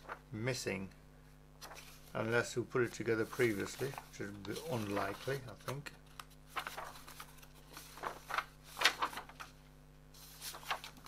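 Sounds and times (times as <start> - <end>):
faint steady hum: 0.0 - 11.0
paper pages rustling: 1.6 - 11.0.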